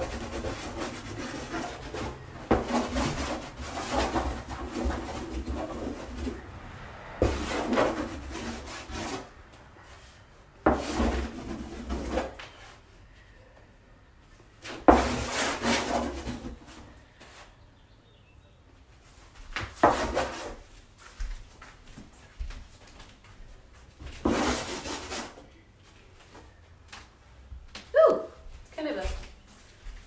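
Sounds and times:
charcoal scratching on wooden panel: 0.0s - 6.5s, 7.2s - 10.1s, 10.7s - 12.8s, 14.6s - 16.8s, 19.8s - 20.6s, 24.2s - 25.4s.

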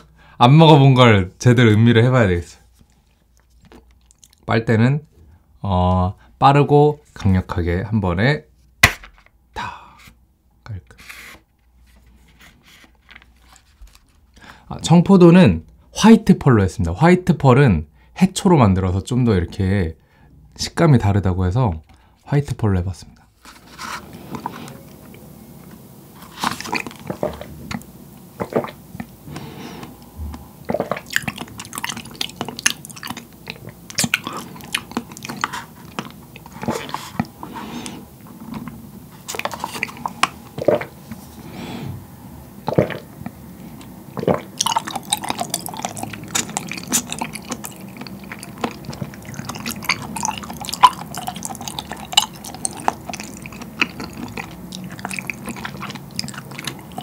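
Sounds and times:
squishy chewing: 2.8s - 4.5s, 23.7s - 41.3s, 42.6s - 57.0s
slurping through a straw: 23.6s - 25.1s, 26.2s - 42.0s, 42.7s - 57.0s.

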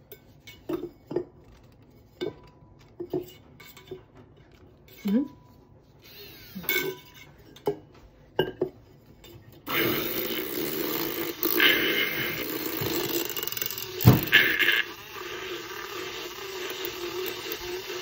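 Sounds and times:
milk frother whirring: 6.0s - 7.3s, 9.7s - 18.0s.

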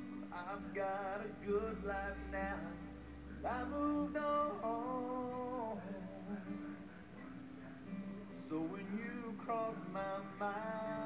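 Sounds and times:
man singing: 0.0s - 11.0s.

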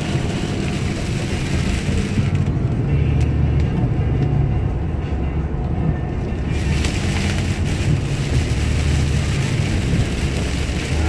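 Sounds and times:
rain and tyre spray hiss: 0.0s - 2.5s, 6.4s - 11.0s
engine and tyre rumble: 0.0s - 11.0s.

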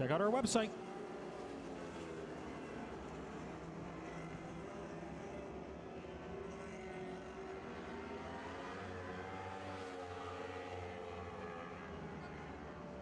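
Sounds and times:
race car engines humming: 0.3s - 13.0s.

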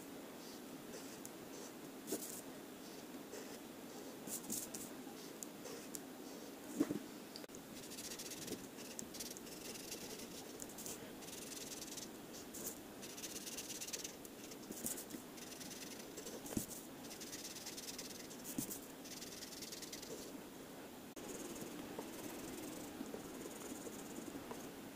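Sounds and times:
marker scribbling on paper: 7.8s - 20.3s.

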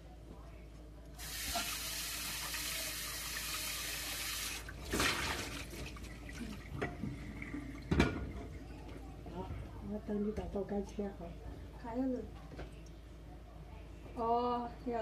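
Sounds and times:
water splash: 4.8s - 6.0s.

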